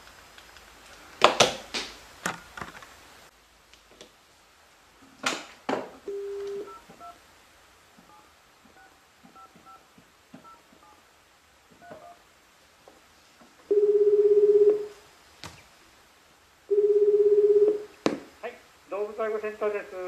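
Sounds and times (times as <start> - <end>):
dial tone: 6.1 - 7.1, 13.7 - 15.0, 16.7 - 17.9
buzzing ringback tone: 6.1 - 7.2, 13.7 - 14.9, 16.7 - 17.9
touch-tone beeps: 6.1 - 7.2, 13.7 - 14.9.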